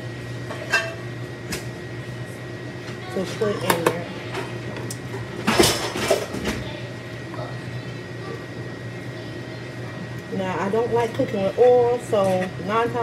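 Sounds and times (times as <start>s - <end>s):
steady low hum: 0.0s - 13.0s
kitchen utensils clattering: 5.4s - 6.6s.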